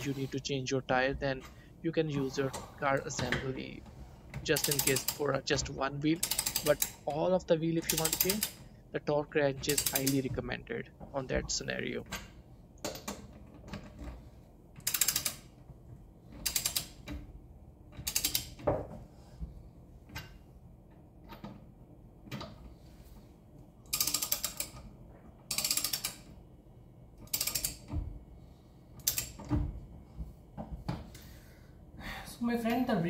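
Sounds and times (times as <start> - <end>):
ratchet wrench clicking: 6.2 - 7.0, 7.9 - 8.6, 14.8 - 15.4, 16.4 - 17.0, 18.0 - 18.6, 23.9 - 24.8, 25.5 - 26.2, 27.3 - 27.8, 29.0 - 29.4.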